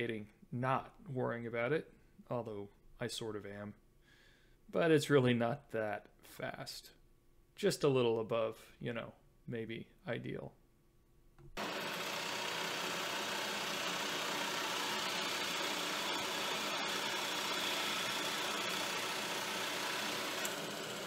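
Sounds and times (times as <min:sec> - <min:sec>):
drill press boring into wood: 0:11.6 - 0:21.0.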